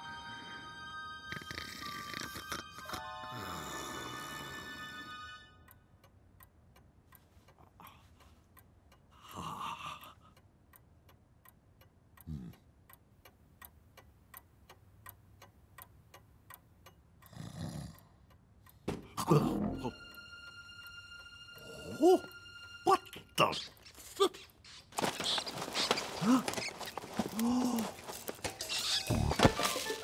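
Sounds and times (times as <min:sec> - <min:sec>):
music: 0:00.0 - 0:05.8, 0:19.0 - 0:23.7, 0:28.6 - 0:30.0
cartoon snores: 0:01.3 - 0:04.8, 0:17.3 - 0:18.2
clock ticking: 0:05.6 - 0:30.0.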